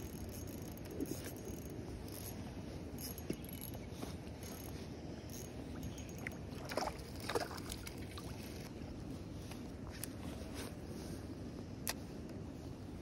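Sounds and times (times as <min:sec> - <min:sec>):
water sloshing and splashing: 0:05.7 - 0:08.9.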